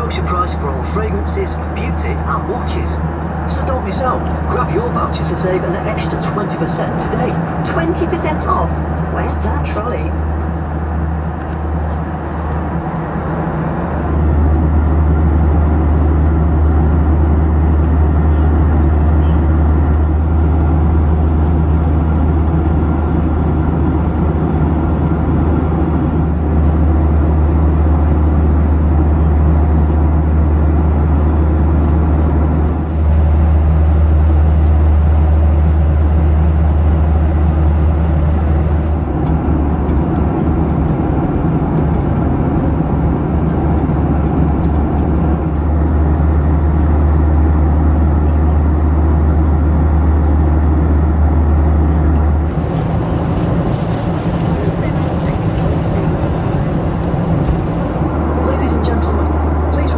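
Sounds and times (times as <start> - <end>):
airliner cabin hum: 0.0 - 59.9.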